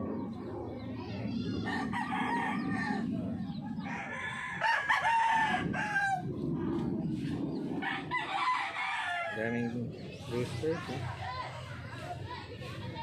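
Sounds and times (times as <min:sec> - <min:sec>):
roosters crowing: 0:00.0 - 0:10.0
low background rumble: 0:00.0 - 0:13.0.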